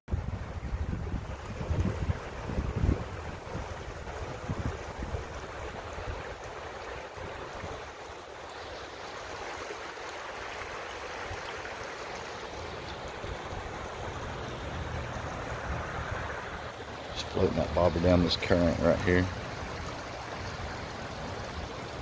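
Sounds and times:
wind buffeting microphone: 0.1 - 8.0, 13.0 - 18.1
river water flowing: 0.1 - 22.0.

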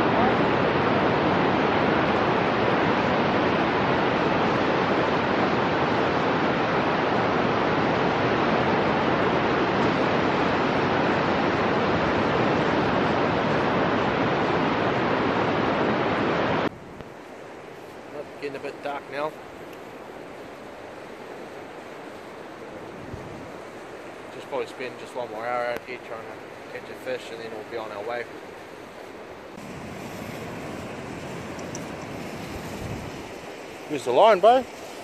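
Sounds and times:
surf on a beach: 0.0 - 35.0
wind rushing: 22.7 - 23.7, 29.2 - 34.9.

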